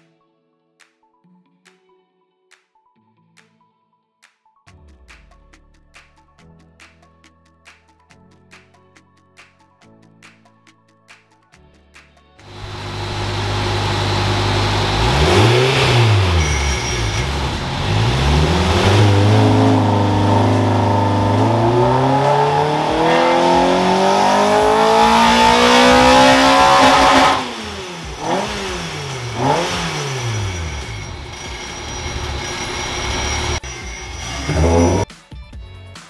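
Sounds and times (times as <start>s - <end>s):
car engine revving on dyno: 12.5s - 35.0s.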